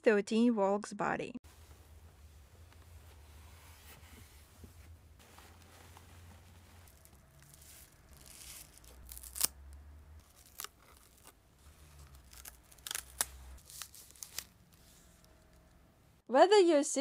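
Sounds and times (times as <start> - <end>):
plastic wrap rustling and crinkling: 3.0 - 9.6, 10.2 - 15.6
sharp plastic crackles: 6.8 - 15.7.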